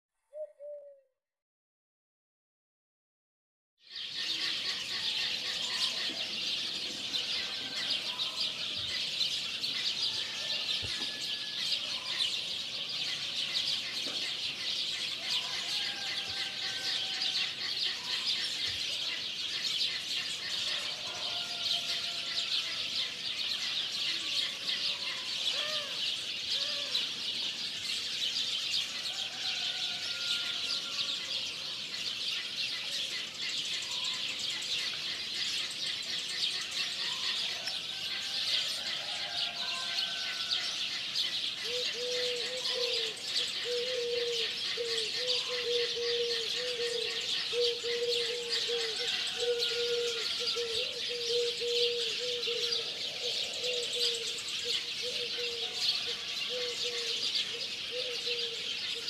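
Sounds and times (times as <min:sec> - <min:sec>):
bird calls and whistles: 0:00.3 - 0:01.0.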